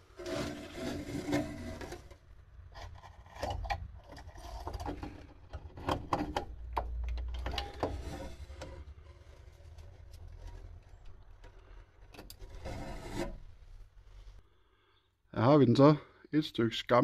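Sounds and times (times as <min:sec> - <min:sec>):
metal scraping: 0:00.0 - 0:06.3, 0:07.4 - 0:14.4
metal clicks and knocks: 0:03.3 - 0:08.8.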